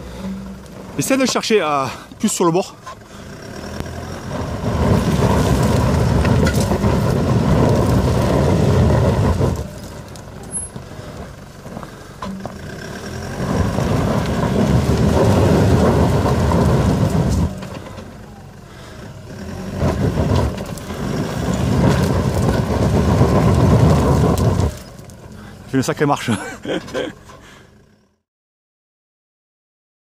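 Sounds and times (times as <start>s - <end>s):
diesel engine revving hard: 0.0s - 27.9s
tyres knocking over stones: 4.4s - 12.7s, 19.7s - 27.4s.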